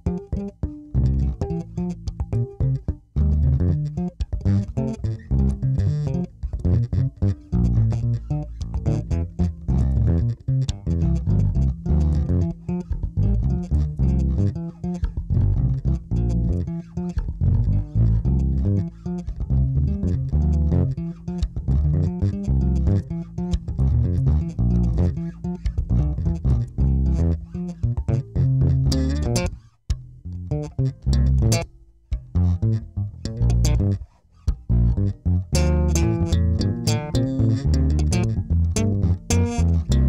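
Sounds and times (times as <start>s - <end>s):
electric bass guitar plucking: 0.0s - 40.0s.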